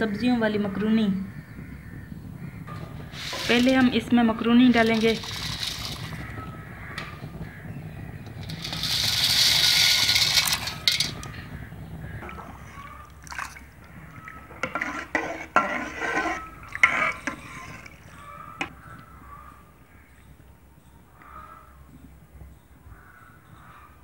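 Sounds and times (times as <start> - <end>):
pasta pouring into water: 4.8 - 6.3, 8.4 - 11.3, 13.0 - 13.7.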